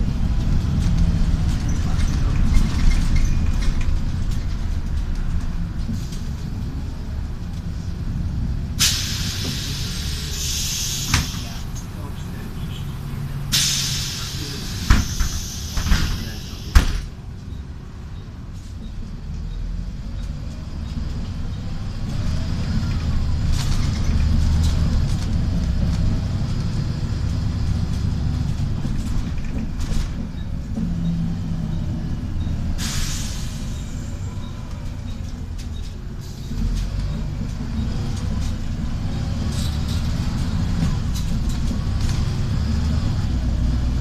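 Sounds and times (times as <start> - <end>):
diesel bus engine rumble: 0.0 - 44.0
bus doors hissing air: 8.6 - 11.8, 13.4 - 17.1, 31.8 - 35.3.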